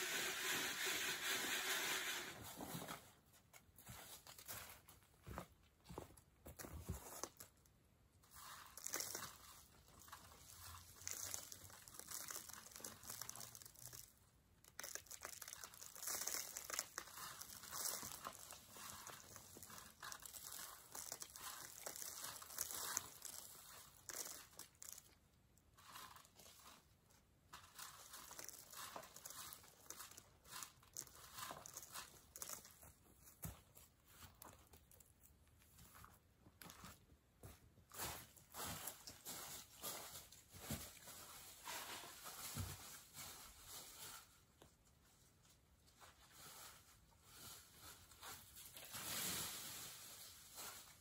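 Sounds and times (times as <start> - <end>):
dirt rattling in sifting screen: 0.0 - 2.9, 8.2 - 35.0.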